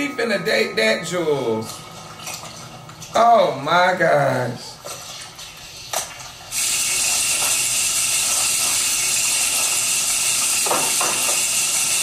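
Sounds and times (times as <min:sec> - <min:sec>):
tap water running into sink: 0:06.0 - 0:12.0.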